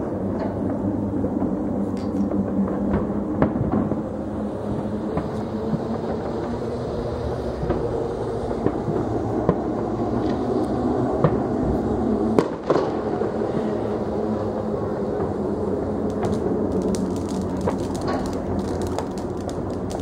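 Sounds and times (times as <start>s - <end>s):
fireworks low rumble: 0.0s - 20.0s
firecracker cracks: 16.0s - 20.0s.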